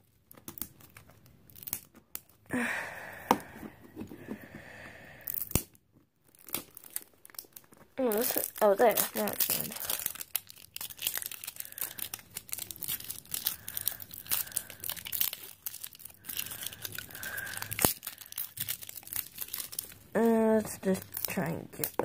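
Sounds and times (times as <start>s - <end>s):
plastic wrapping crinkling and tearing: 0.0s - 2.5s, 5.3s - 22.0s.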